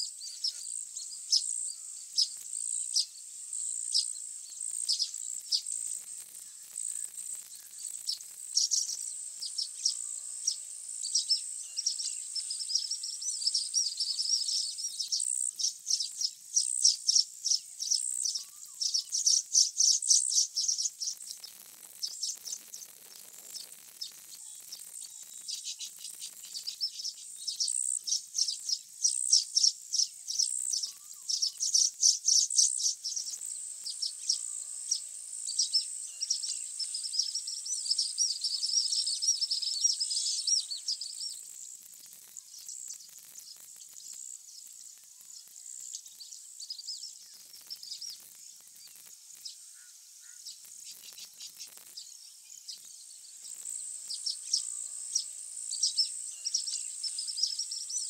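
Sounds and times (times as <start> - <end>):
birds chattering high chirps: 0.0 - 58.0
high-pitched insect buzz: 0.0 - 58.0.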